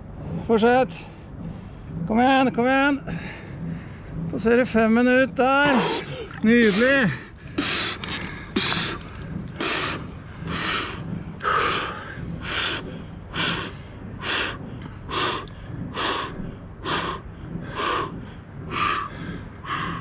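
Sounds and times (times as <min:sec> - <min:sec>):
person gasping breaths: 0:05.6 - 0:20.0.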